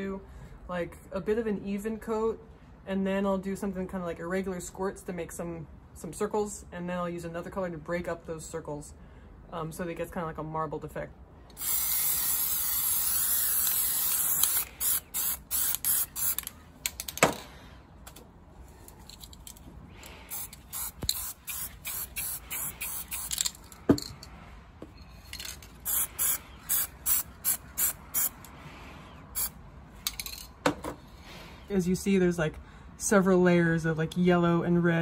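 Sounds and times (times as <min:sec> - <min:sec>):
spray can hissing: 0:11.6 - 0:16.5, 0:20.3 - 0:23.4, 0:25.8 - 0:28.4.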